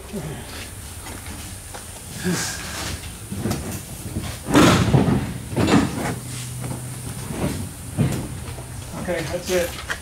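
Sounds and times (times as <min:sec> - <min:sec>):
car body knocks and scrapes: 0:03.3 - 0:08.7.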